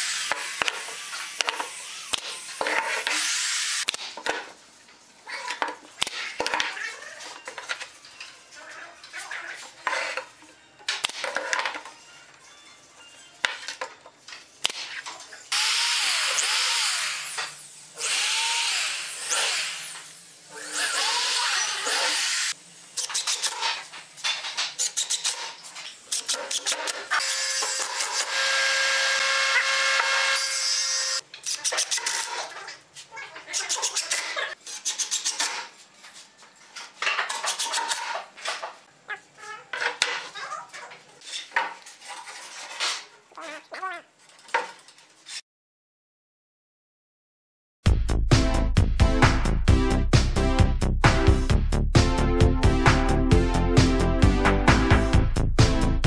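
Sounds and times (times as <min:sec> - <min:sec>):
power tool motor running: 0:15.6 - 0:22.6, 0:27.2 - 0:31.2.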